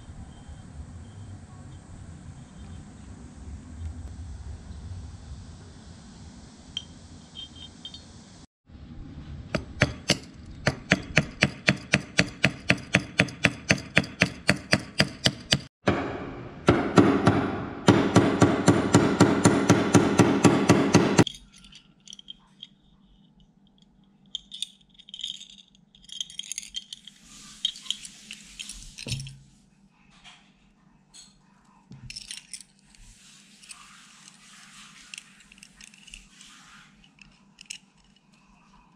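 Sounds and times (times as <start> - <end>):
metallic clinks of small parts: 6.8 - 8.1, 21.2 - 29.5, 31.9 - 38.8
small hammer tapping metal: 9.6 - 15.7.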